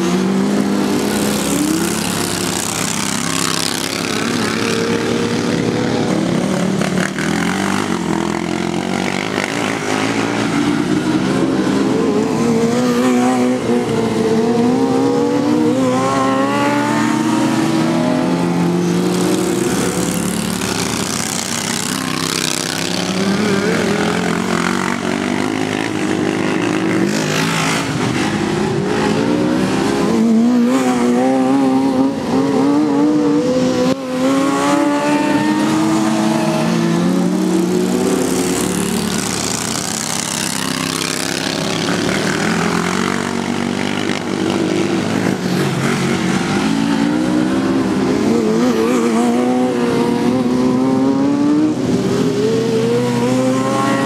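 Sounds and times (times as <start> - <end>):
lawn mower engines revving: 0.0 - 54.0.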